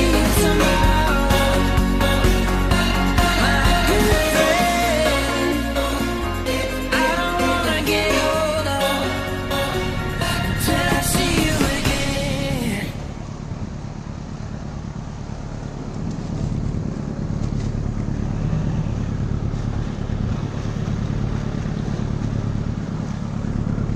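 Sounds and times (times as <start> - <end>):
music: 0.0 - 13.0
boat engine rumbling: 0.0 - 23.9.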